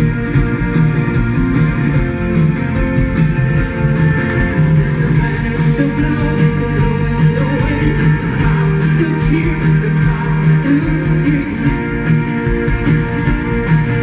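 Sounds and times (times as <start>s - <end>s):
live band music: 0.0s - 14.0s
strummed guitar: 0.0s - 14.0s.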